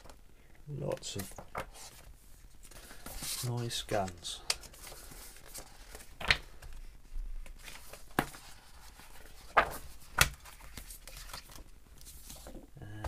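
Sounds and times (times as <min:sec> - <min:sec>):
catalogue pages turning: 0:00.0 - 0:12.6
paper flaps: 0:07.5 - 0:12.6.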